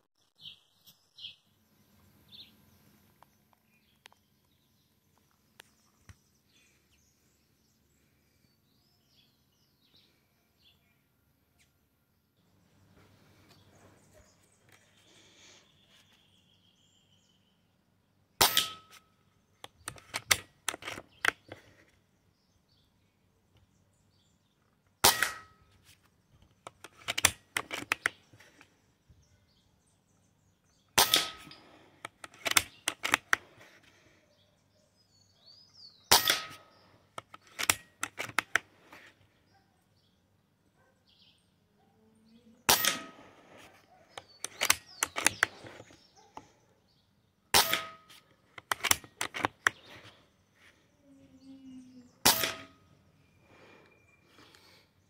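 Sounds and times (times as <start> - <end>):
air rifle shots: 18.4 - 19.0, 25.0 - 25.6, 31.0 - 33.4, 36.1 - 36.7, 42.7 - 43.4, 47.5 - 49.7, 52.2 - 52.8.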